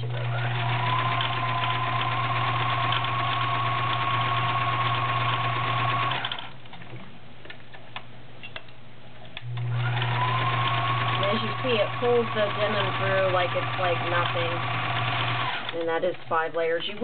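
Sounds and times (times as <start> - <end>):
sewing machine running: 0.0 - 6.5, 9.5 - 16.4.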